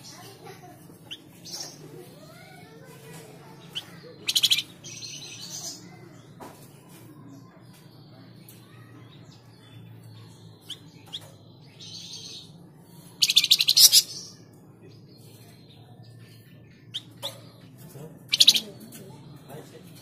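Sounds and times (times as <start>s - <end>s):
bird rapid rattling trills: 0.0s - 5.9s, 10.3s - 14.4s, 18.2s - 18.9s
songbird chirping: 0.0s - 20.0s.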